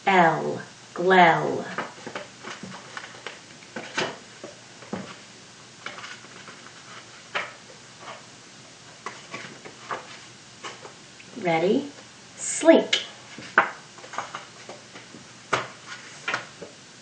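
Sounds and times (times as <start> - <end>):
paper cards tapping and rustling: 1.7 - 5.2, 5.8 - 8.2, 9.0 - 11.0, 13.0 - 16.8.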